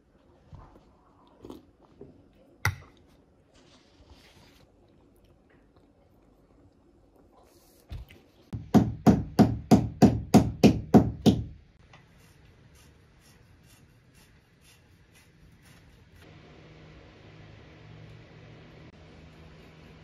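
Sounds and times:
hammer striking a nail: 8.6 - 11.6.

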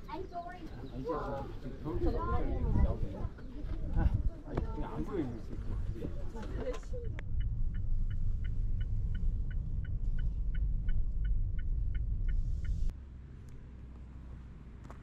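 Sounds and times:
car cabin rumble: 6.9 - 12.9
turn signal ticking: 6.9 - 12.9.

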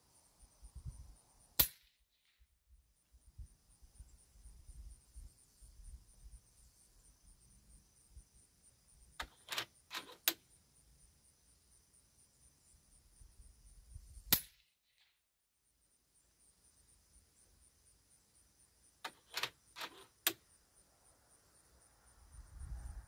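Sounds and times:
air rifle shot: 1.6 - 1.9, 14.3 - 14.6
sharp clicks: 9.2 - 10.4, 19.0 - 20.4.

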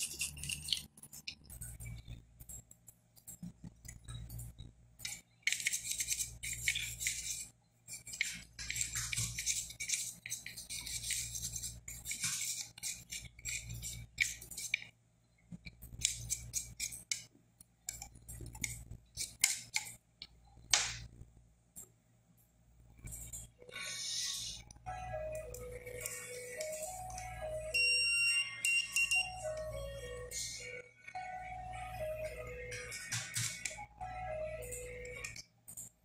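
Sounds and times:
toothbrush scrubbing circuit board: 0.0 - 4.4, 5.0 - 15.0, 15.8 - 17.3, 17.9 - 20.0.

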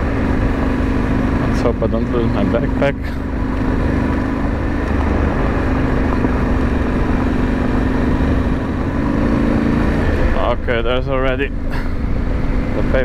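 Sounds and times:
motorcycle engine running: 0.0 - 13.0
tyres rumbling on gravel: 0.0 - 13.0.

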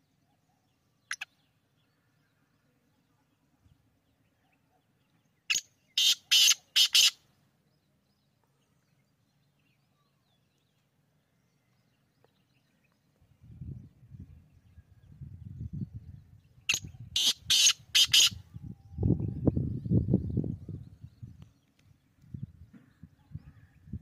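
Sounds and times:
bird giving harsh grating call: 5.5 - 7.2, 16.7 - 18.4.

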